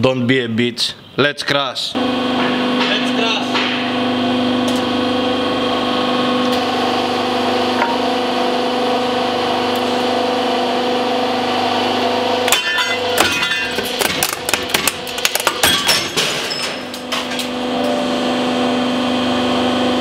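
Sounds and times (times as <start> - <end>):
hydraulic press pump humming: 2.0 - 13.2.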